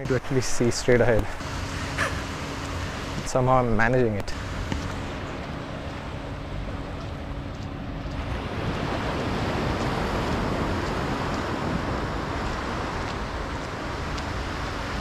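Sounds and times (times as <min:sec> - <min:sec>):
sea waves breaking on beach: 0:08.1 - 0:15.0.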